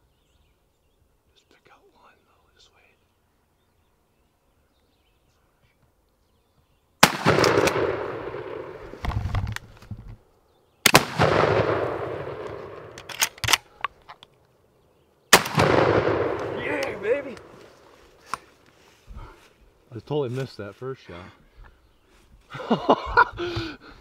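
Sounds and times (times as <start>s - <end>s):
shotgun blasts echoing: 7.0s - 8.9s, 10.8s - 13.0s, 15.3s - 17.6s.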